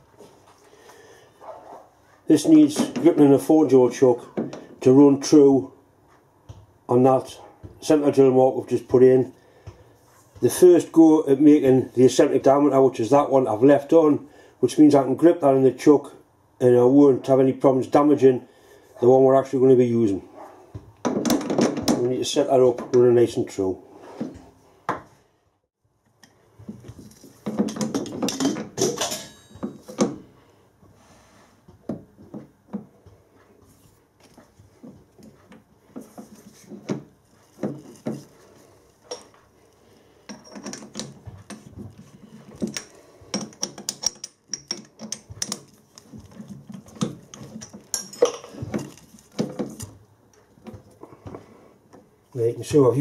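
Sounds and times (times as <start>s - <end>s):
metal clinks and knocks: 26.2s - 30.3s, 34.3s - 39.4s, 40.2s - 51.0s
metal clattering: 27.3s - 30.2s.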